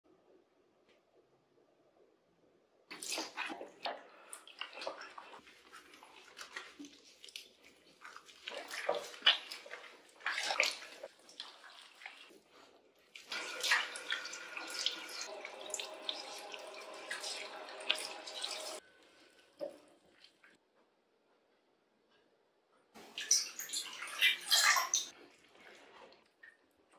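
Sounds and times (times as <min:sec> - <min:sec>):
water splashing on fur: 0:02.9 - 0:18.8
running water stream: 0:13.1 - 0:18.8.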